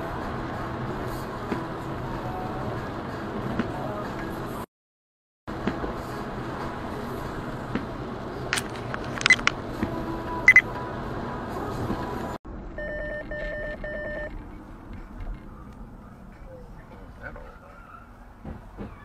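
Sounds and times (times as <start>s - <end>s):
short electronic beeps: 12.8s - 14.3s.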